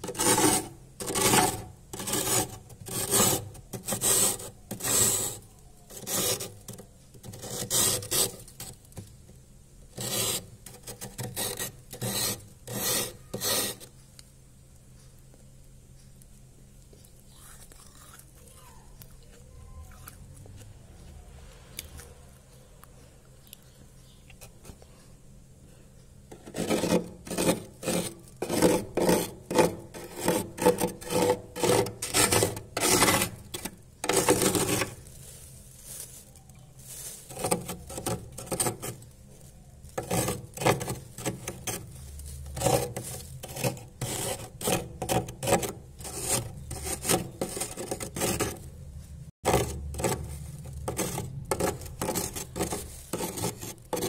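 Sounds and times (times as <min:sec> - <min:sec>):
frost being scraped in freezer: 0:00.0 - 0:09.1, 0:09.9 - 0:13.9, 0:26.3 - 0:48.8, 0:49.4 - 0:54.0.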